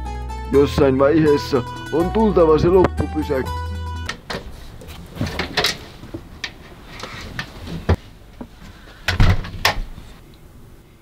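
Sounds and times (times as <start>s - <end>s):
knocks and clicks of handling: 4.0s - 10.0s.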